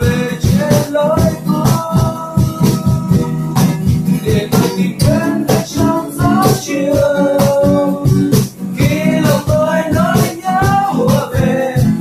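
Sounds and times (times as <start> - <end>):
acoustic guitars strummed: 0.0 - 12.0
steady rhythmic beat: 0.0 - 12.0
young man singing: 0.0 - 12.0.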